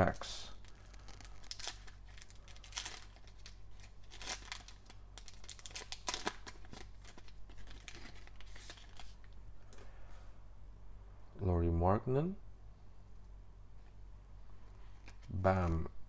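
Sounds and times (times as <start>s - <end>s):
foil card pack crinkling and tearing: 0.6s - 9.2s.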